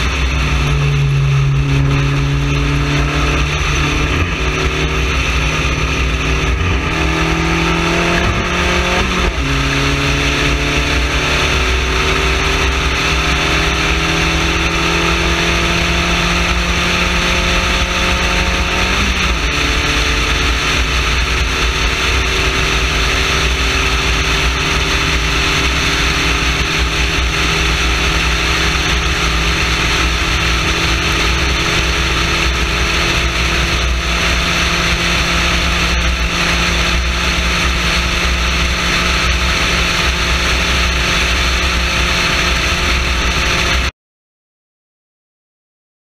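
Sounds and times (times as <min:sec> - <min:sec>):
heavy wind rush: 0:00.0 - 0:43.9
race car engine running hard: 0:00.0 - 0:43.9.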